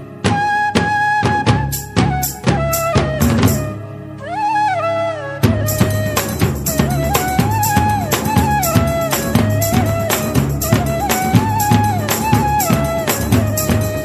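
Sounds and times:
sliding melody: 0:00.0 - 0:14.0
steady percussion beat: 0:05.7 - 0:14.0.

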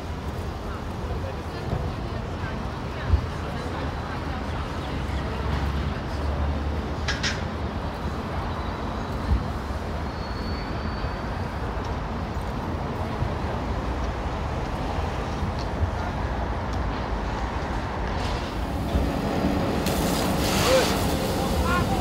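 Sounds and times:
low traffic rumble: 0:00.0 - 0:22.0.

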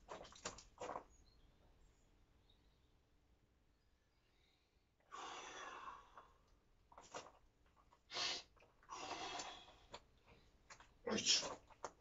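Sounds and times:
man breathing hard: 0:05.1 - 0:06.4.

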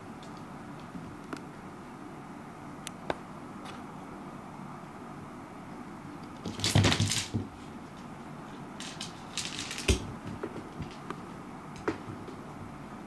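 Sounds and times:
seed clicking on wooden floor: 0:06.4 - 0:07.4, 0:08.8 - 0:11.2.

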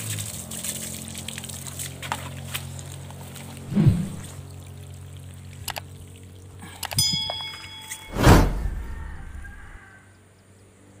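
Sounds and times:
short ringing tone: 0:07.0 - 0:09.8
loud rushing burst: 0:08.1 - 0:09.8.

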